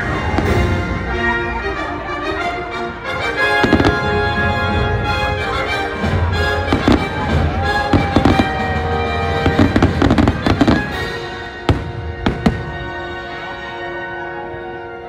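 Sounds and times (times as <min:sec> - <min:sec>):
fireworks bangs and crackles: 0:00.0 - 0:01.1, 0:03.6 - 0:13.4
orchestral music over loudspeakers: 0:00.0 - 0:15.0.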